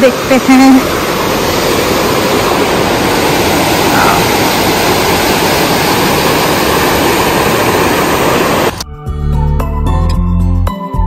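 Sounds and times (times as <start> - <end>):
river water rushing: 0.0 - 8.8.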